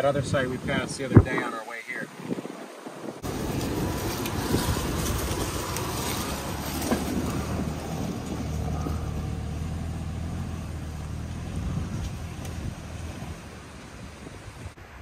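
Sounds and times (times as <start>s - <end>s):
tyres on dirt and leaves: 2.7s - 15.0s
car engine humming: 3.2s - 14.8s.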